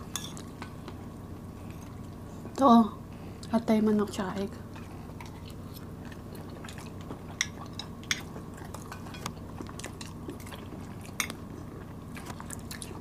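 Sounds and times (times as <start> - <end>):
mouth chewing sticky rice: 4.7 - 13.0.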